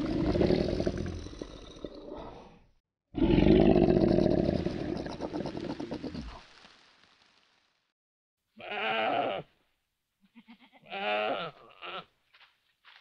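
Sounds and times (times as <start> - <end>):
lion roaring: 0.0 - 2.6, 3.2 - 6.4.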